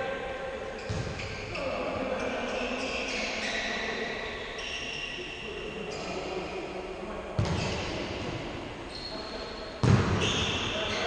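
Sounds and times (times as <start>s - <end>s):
players' voices: 0.0s - 11.0s
shoes squeaking on court: 0.8s - 1.8s, 8.9s - 11.0s
ball struck with sharp thud: 9.8s - 10.4s.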